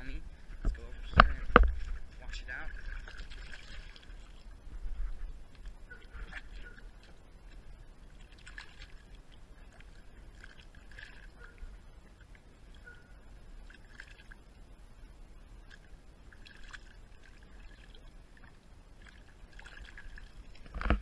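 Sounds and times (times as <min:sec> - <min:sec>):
low steady rumble: 0:00.0 - 0:21.0
water splashing and sloshing: 0:00.3 - 0:21.0.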